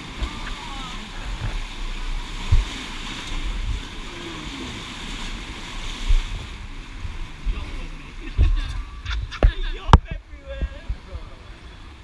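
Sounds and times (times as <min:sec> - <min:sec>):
rushing white water: 0:00.0 - 0:12.0
low thumps: 0:01.2 - 0:04.0.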